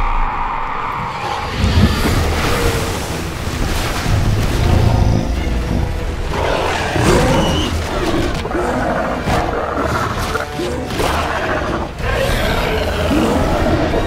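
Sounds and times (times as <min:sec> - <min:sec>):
film score: 0:00.0 - 0:14.0
creature roars and growls: 0:06.3 - 0:14.0.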